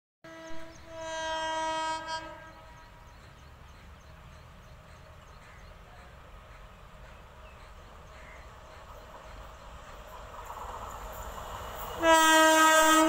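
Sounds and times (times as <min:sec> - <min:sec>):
train horn blast: 0:00.2 - 0:02.9, 0:12.0 - 0:13.0.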